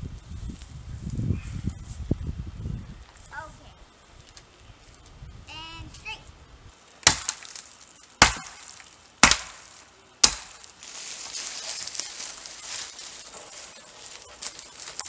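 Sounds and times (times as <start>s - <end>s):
dry twigs crackling and rustling: 6.7s - 15.0s
sharp wooden knocks: 7.0s - 7.4s, 8.2s - 10.6s.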